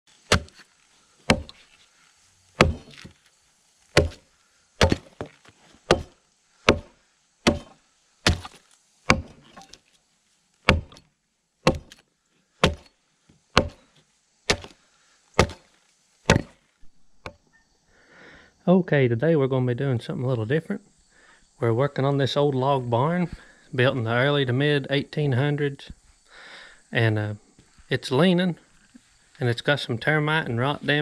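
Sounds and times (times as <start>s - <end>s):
axe chopping into log: 0.3s - 0.7s, 1.3s - 1.6s, 2.6s - 3.2s, 3.9s - 9.8s, 10.7s - 11.0s, 11.6s - 12.0s, 12.6s - 12.9s, 13.6s - 13.8s, 14.5s - 14.8s, 15.4s - 15.7s, 16.3s - 16.6s.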